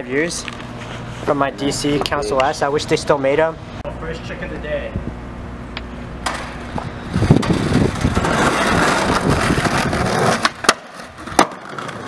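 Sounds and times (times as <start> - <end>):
skateboard wheels rolling on asphalt: 6.2 - 12.0
skateboard clacks: 7.4 - 12.0.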